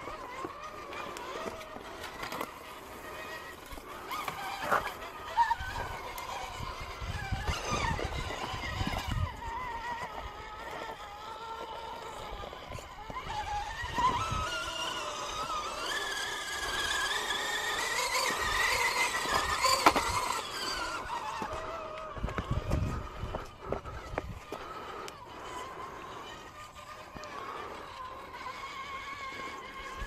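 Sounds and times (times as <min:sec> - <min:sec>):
electric motor whining: 0:00.0 - 0:30.0.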